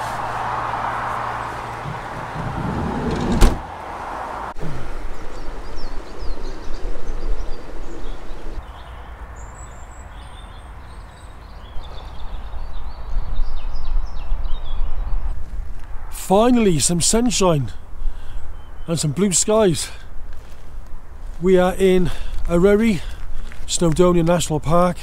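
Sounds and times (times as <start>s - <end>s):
sliding van door slamming: 1.8s - 3.7s.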